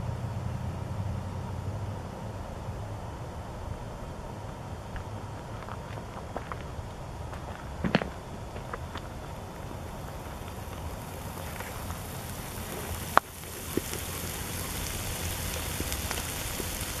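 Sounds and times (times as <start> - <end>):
frying pan sizzling: 8.4 - 17.0.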